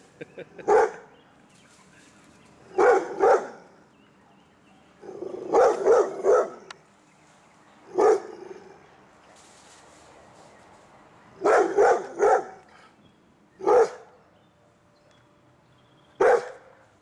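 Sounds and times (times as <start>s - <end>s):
dog barking: 0.7s - 1.1s, 2.8s - 3.7s, 5.0s - 6.7s, 8.0s - 8.4s, 11.4s - 12.7s, 13.6s - 14.1s, 16.2s - 16.7s.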